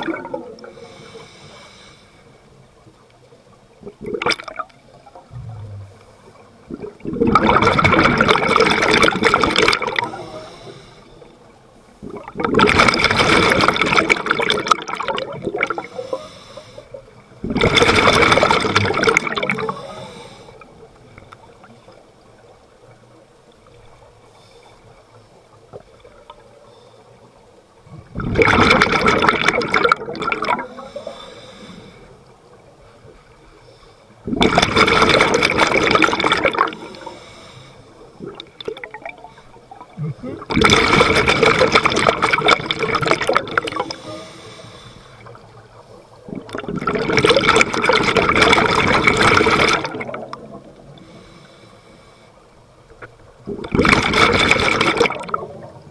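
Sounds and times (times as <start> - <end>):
underwater exhaled bubbles rushing: 0.0 - 1.2, 3.7 - 16.4, 17.0 - 22.6, 27.9 - 32.8, 34.2 - 37.4, 38.0 - 51.2, 52.9 - 55.9.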